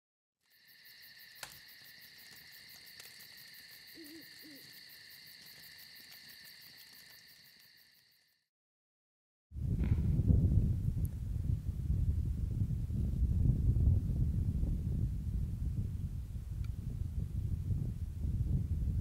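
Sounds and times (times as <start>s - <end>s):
insects chirring: 0.4s - 8.4s
owl hooting: 3.6s - 5.6s.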